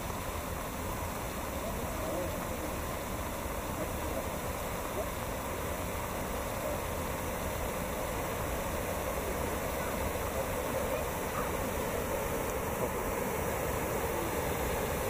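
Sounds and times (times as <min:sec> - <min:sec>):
floodwater rushing down rocky ravine: 0:00.0 - 0:15.0.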